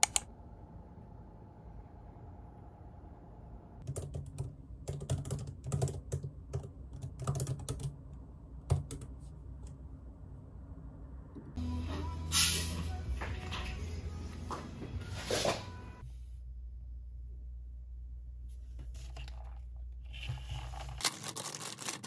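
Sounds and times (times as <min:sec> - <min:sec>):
typing on computer keyboard: 0:00.0 - 0:00.2, 0:03.8 - 0:08.0, 0:08.7 - 0:09.1.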